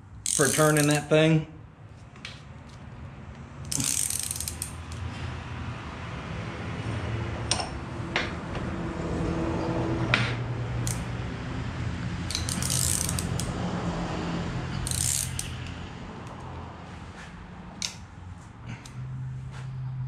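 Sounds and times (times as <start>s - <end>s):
metal parts clicking: 0.2s - 1.1s, 3.6s - 5.1s, 12.3s - 13.5s, 14.7s - 15.7s.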